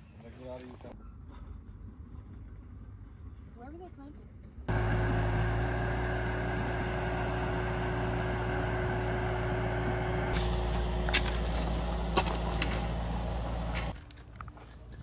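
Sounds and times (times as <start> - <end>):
diesel engine running under load: 4.7 - 14.0
shovels striking stony ground: 10.4 - 15.0.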